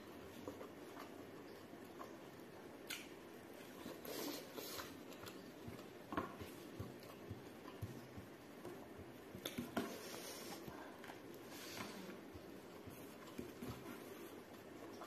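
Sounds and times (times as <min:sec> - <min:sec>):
chewing and mouth clicks: 0:00.2 - 0:09.8.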